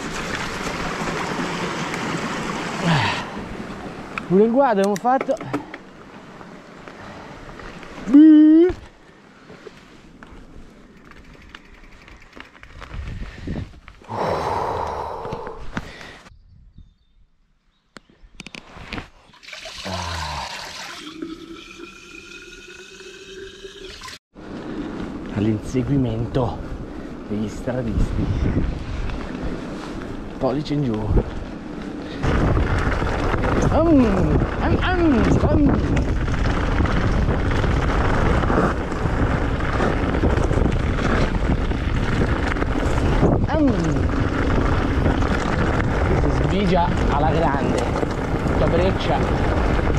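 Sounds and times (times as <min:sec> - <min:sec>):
bike tyres rattling over stony trail: 0:00.0 - 0:08.1, 0:08.8 - 0:14.0, 0:24.4 - 0:49.9
wind buffeting microphone: 0:11.0 - 0:17.3, 0:25.1 - 0:49.9
water pouring into plastic bottle: 0:19.4 - 0:24.2.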